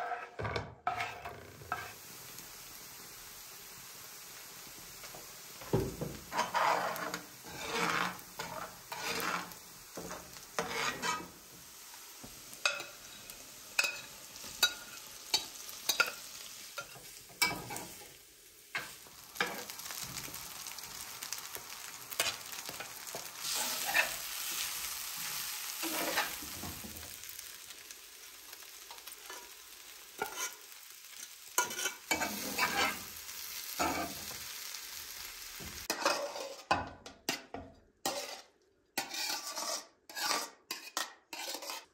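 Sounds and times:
utensil scraping pan: 0.0s - 2.0s, 6.2s - 11.5s, 12.6s - 18.0s, 21.8s - 26.9s, 30.2s - 33.2s, 35.8s - 41.9s
food sizzling in frying pan: 0.9s - 36.8s.

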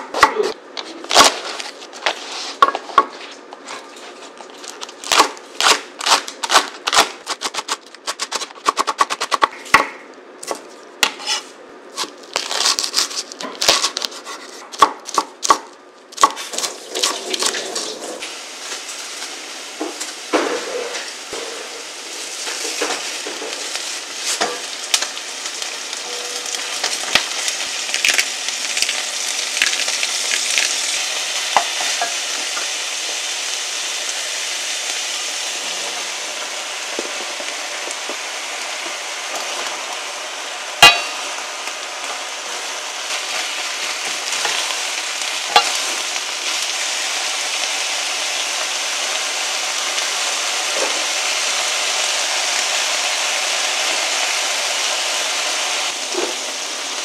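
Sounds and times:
meat sizzling in a pan: 18.2s - 57.0s.

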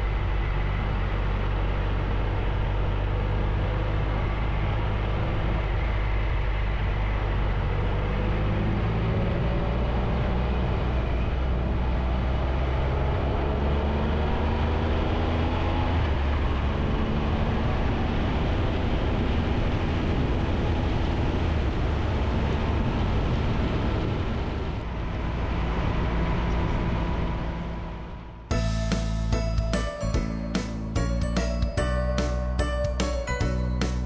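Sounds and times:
wind and road noise: 0.0s - 34.0s
music: 28.5s - 34.0s.

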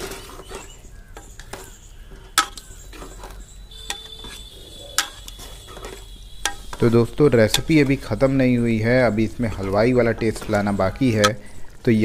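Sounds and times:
ladle stirring in a pot: 0.0s - 11.9s
faint steady high tone: 1.2s - 9.1s
ladle clinking against metal pot: 3.8s - 6.8s, 7.4s - 7.9s.

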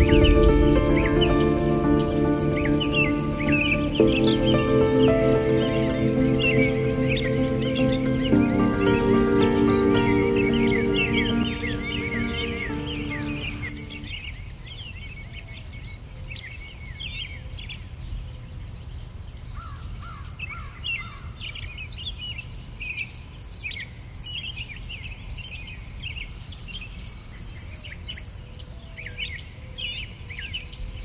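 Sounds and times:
high repeated note: 0.0s - 14.2s
low rumble: 0.0s - 14.2s.

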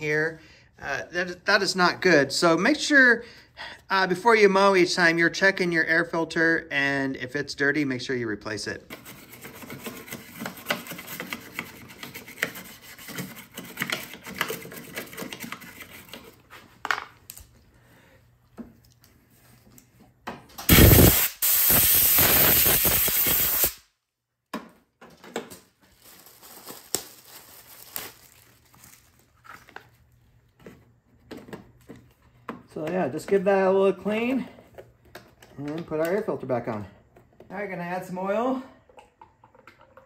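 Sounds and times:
scrubbing and scraping: 8.9s - 16.8s
loud steady hiss: 20.7s - 23.8s.

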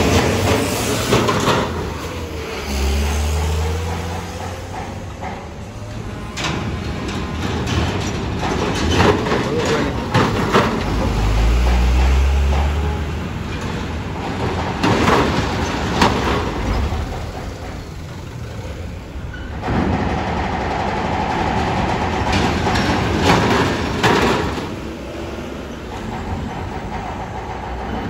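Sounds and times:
metallic clanks of wheels on ramp: 0.0s - 28.0s
truck engine rumble: 0.0s - 28.0s.

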